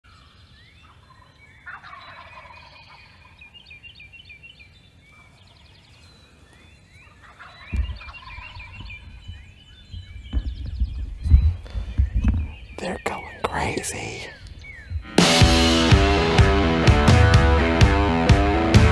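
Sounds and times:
songbirds chirping: 0:00.0 - 0:18.9
turkey gobbling: 0:00.8 - 0:03.5, 0:07.1 - 0:12.0
thump on microphone: 0:07.7 - 0:12.6.

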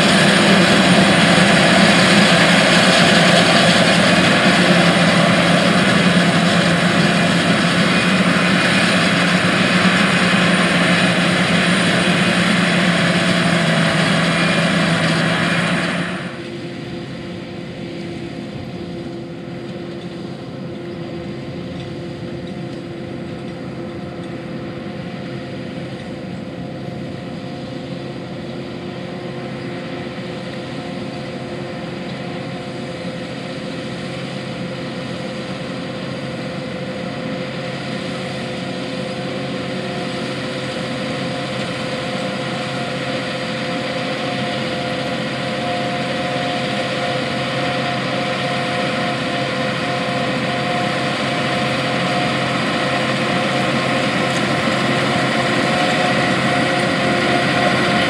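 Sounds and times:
forage harvester chopping: 0:00.0 - 0:16.6, 0:36.6 - 0:58.0
tractor engine: 0:00.0 - 0:58.0.

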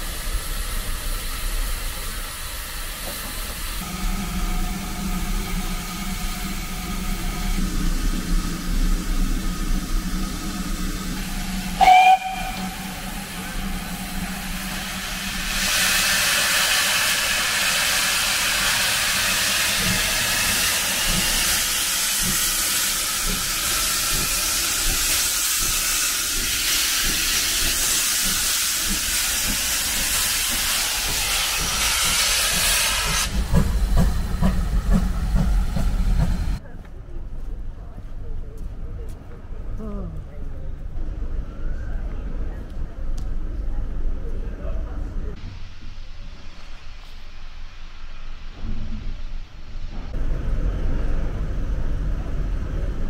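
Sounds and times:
steam hissing: 0:00.0 - 0:36.6
locomotive whistle: 0:11.7 - 0:13.1.

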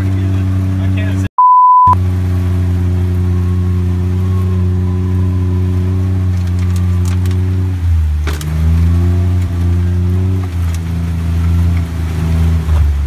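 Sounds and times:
car engine droning: 0:00.0 - 0:01.3, 0:01.9 - 0:13.0
short high beep: 0:01.4 - 0:02.0.

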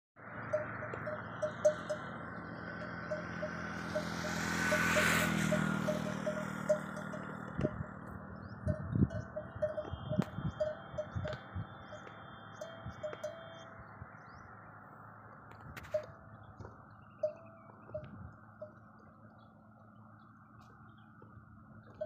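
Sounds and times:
small bell tinkling: 0:00.5 - 0:08.0, 0:08.6 - 0:13.6.

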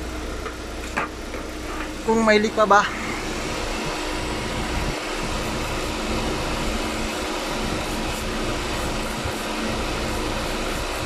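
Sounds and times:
air conditioning hum: 0:00.0 - 0:11.0
car engine running: 0:00.0 - 0:11.0.

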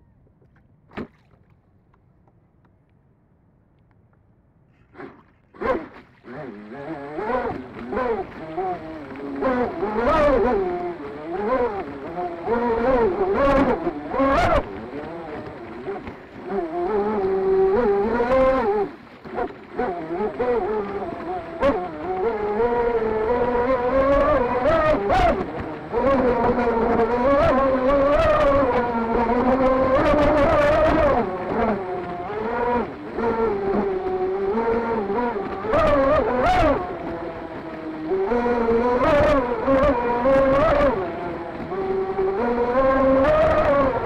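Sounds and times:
water splash: 0:00.9 - 0:01.6, 0:04.8 - 0:10.0
electric boat motor whining: 0:04.8 - 0:44.0
water rushing past hull: 0:04.8 - 0:44.0.

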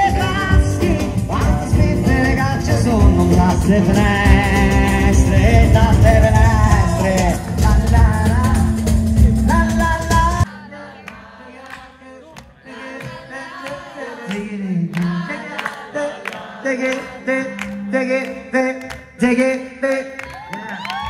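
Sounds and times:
live acoustic band playing: 0:00.0 - 0:11.4
rhythmic hand clapping: 0:00.0 - 0:21.0
audience singing along: 0:10.4 - 0:18.8.

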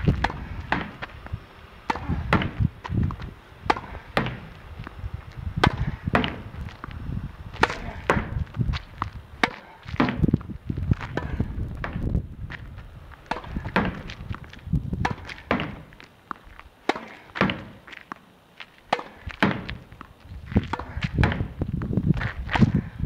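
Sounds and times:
ball hitting wall and bouncing: 0:00.0 - 0:01.1, 0:01.8 - 0:05.0, 0:05.6 - 0:06.6, 0:07.6 - 0:10.4, 0:11.0 - 0:12.2, 0:13.2 - 0:14.4, 0:15.0 - 0:17.9, 0:18.9 - 0:22.8
racket hitting tennis ball: 0:00.0 - 0:01.1, 0:01.8 - 0:05.0, 0:05.6 - 0:06.5, 0:07.5 - 0:10.3, 0:11.0 - 0:12.1, 0:13.2 - 0:14.4, 0:15.0 - 0:18.2, 0:18.8 - 0:21.6.

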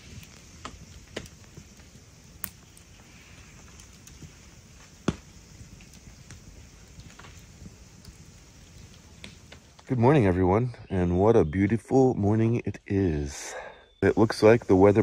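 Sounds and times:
sharp fire pops: 0:00.0 - 0:10.0
campfire crackling: 0:00.0 - 0:15.0.

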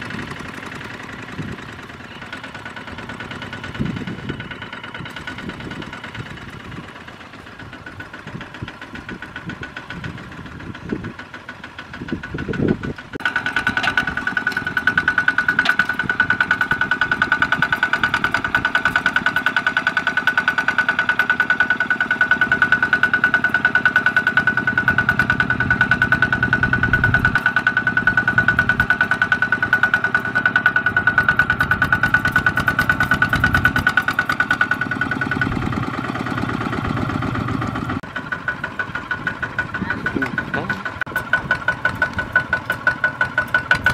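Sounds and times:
diesel engine chugging: 0:00.0 - 0:43.9.

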